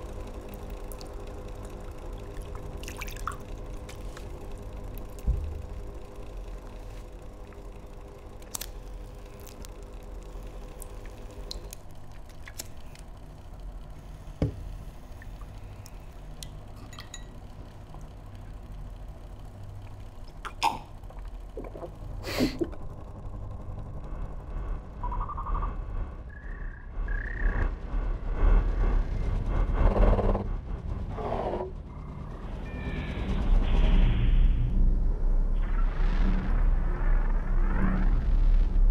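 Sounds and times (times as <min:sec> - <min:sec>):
desk fan humming: 0:00.0 - 0:26.3.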